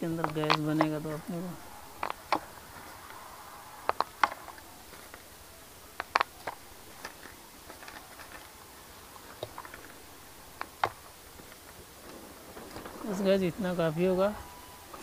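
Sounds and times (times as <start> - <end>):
stones clicking together: 0.2 - 1.2, 1.9 - 3.1, 3.8 - 5.3, 5.9 - 8.5.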